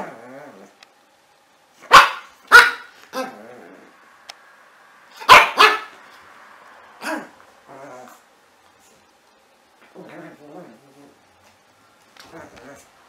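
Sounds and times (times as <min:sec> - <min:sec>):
puppy barking: 0:01.8 - 0:03.3, 0:05.2 - 0:06.0.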